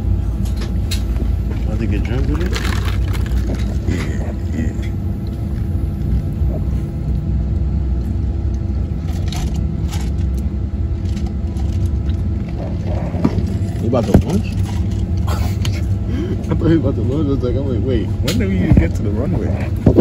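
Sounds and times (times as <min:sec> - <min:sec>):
airliner cabin engine drone: 0:00.0 - 0:20.0.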